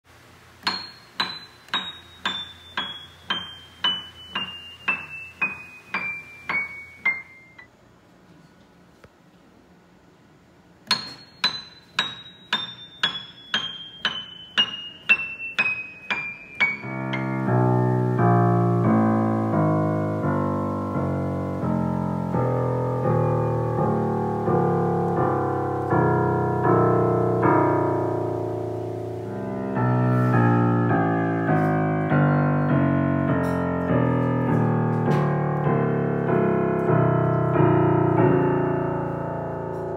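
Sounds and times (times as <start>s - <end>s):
piano notes descending: 0.6s - 7.7s, 10.8s - 39.9s.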